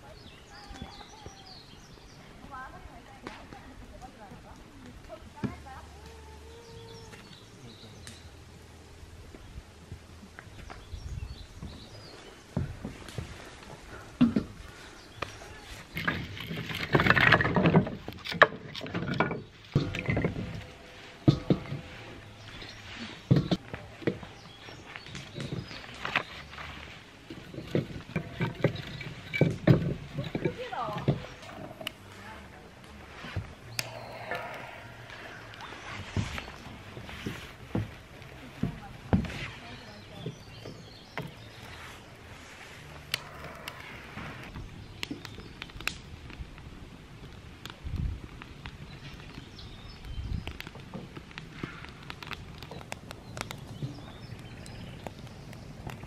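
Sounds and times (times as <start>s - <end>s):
firewood clattering: 11.6s - 56.0s
wood knocking on metal bowl: 21.2s - 21.9s
sharp clicks or snaps: 33.7s - 35.7s.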